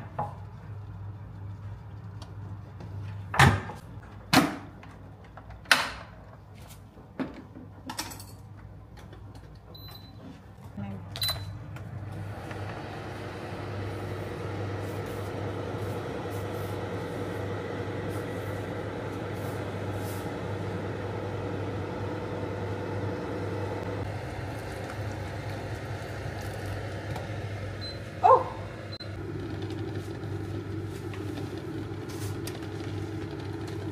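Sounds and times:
electrical hum: 9.8s - 33.9s
appliance rushing noise: 11.6s - 33.9s.

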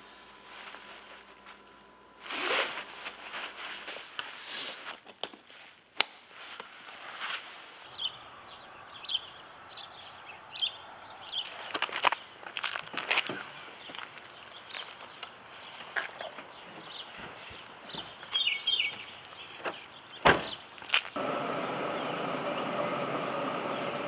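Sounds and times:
backpack fabric rustling: 2.2s - 7.8s
birds chirping: 7.8s - 24.0s.

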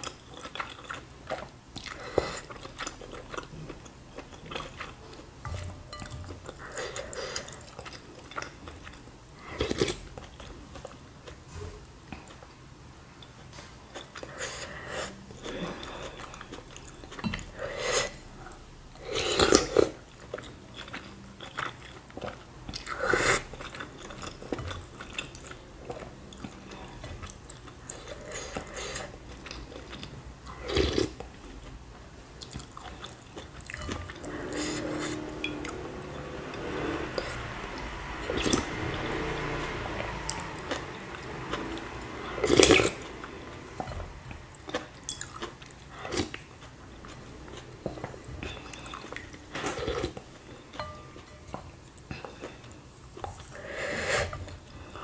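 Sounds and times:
chewing noodles: 0.0s - 11.5s, 13.2s - 55.0s
slurping soup: 32.4s - 50.3s, 52.1s - 55.0s.

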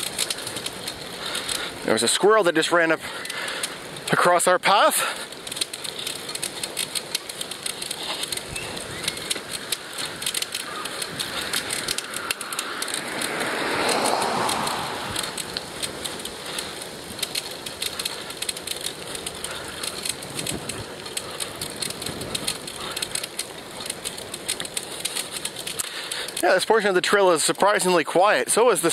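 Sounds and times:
bicycle rolling on rough asphalt: 0.0s - 28.9s.

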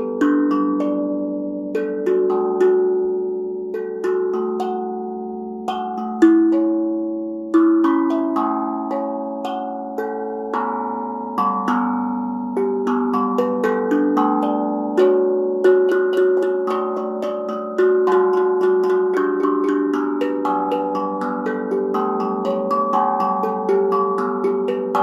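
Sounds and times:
tongue drum notes ringing: 0.0s - 25.0s.

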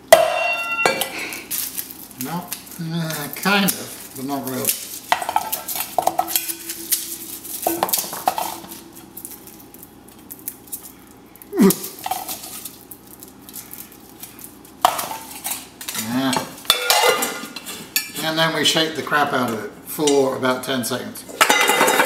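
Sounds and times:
garlic cloves knocking on metal bowl: 4.6s - 8.9s.

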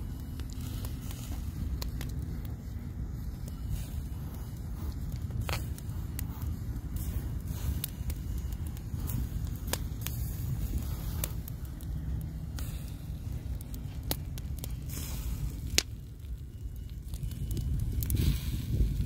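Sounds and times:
low rumble: 0.0s - 19.0s
sharp fire pops: 0.0s - 19.0s
wood fire crackling: 0.0s - 19.0s.

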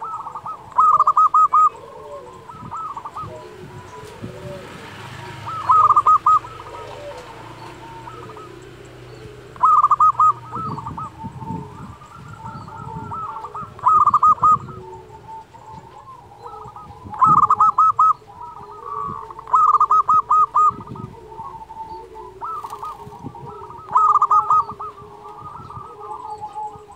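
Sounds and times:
dove cooing: 0.0s - 26.9s.

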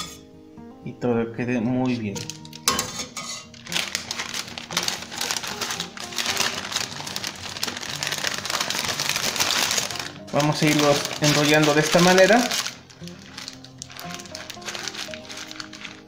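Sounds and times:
background music: 0.0s - 16.0s
paper-like sheet crinkling: 3.5s - 16.0s.

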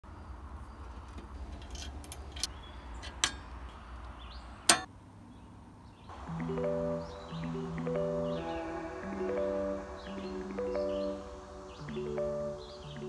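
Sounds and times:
music: 6.1s - 13.0s.

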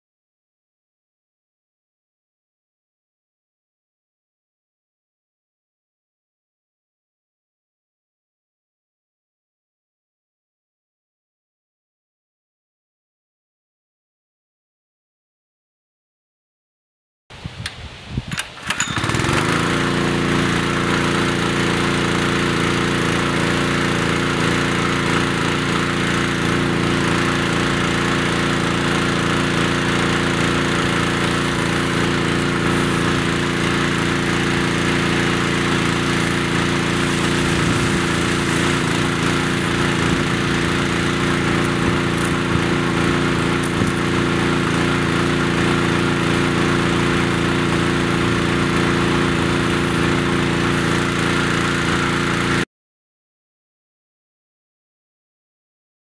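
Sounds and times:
small engine starting and running: 18.3s - 52.7s.

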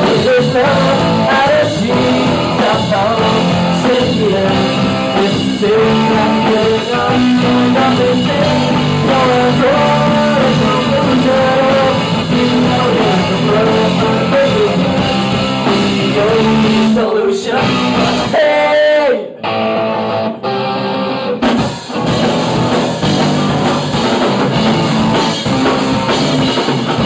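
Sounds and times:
electric bass: 0.0s - 18.4s, 19.4s - 27.0s
drum kit: 0.0s - 18.9s, 19.9s - 27.0s
man singing: 0.0s - 19.6s
electric guitar: 0.0s - 27.0s.

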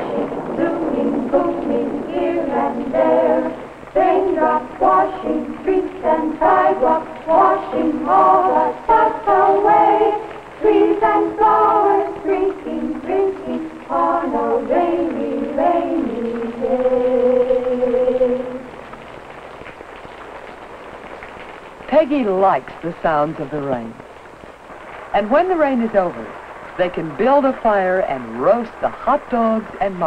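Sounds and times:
voices singing a melody: 0.0s - 18.8s.

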